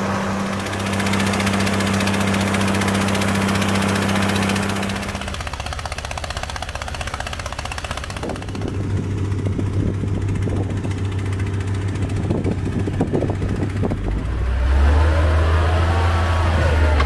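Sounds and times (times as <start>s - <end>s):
water pump: 0.0s - 9.9s
diesel engine humming: 0.0s - 17.0s
wheel loader engine revving: 0.0s - 17.0s.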